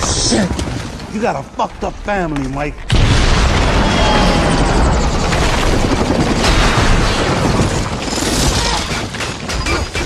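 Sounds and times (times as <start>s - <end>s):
deep booming rumble: 2.9s - 7.6s
heavy automatic gunfire: 2.9s - 10.0s.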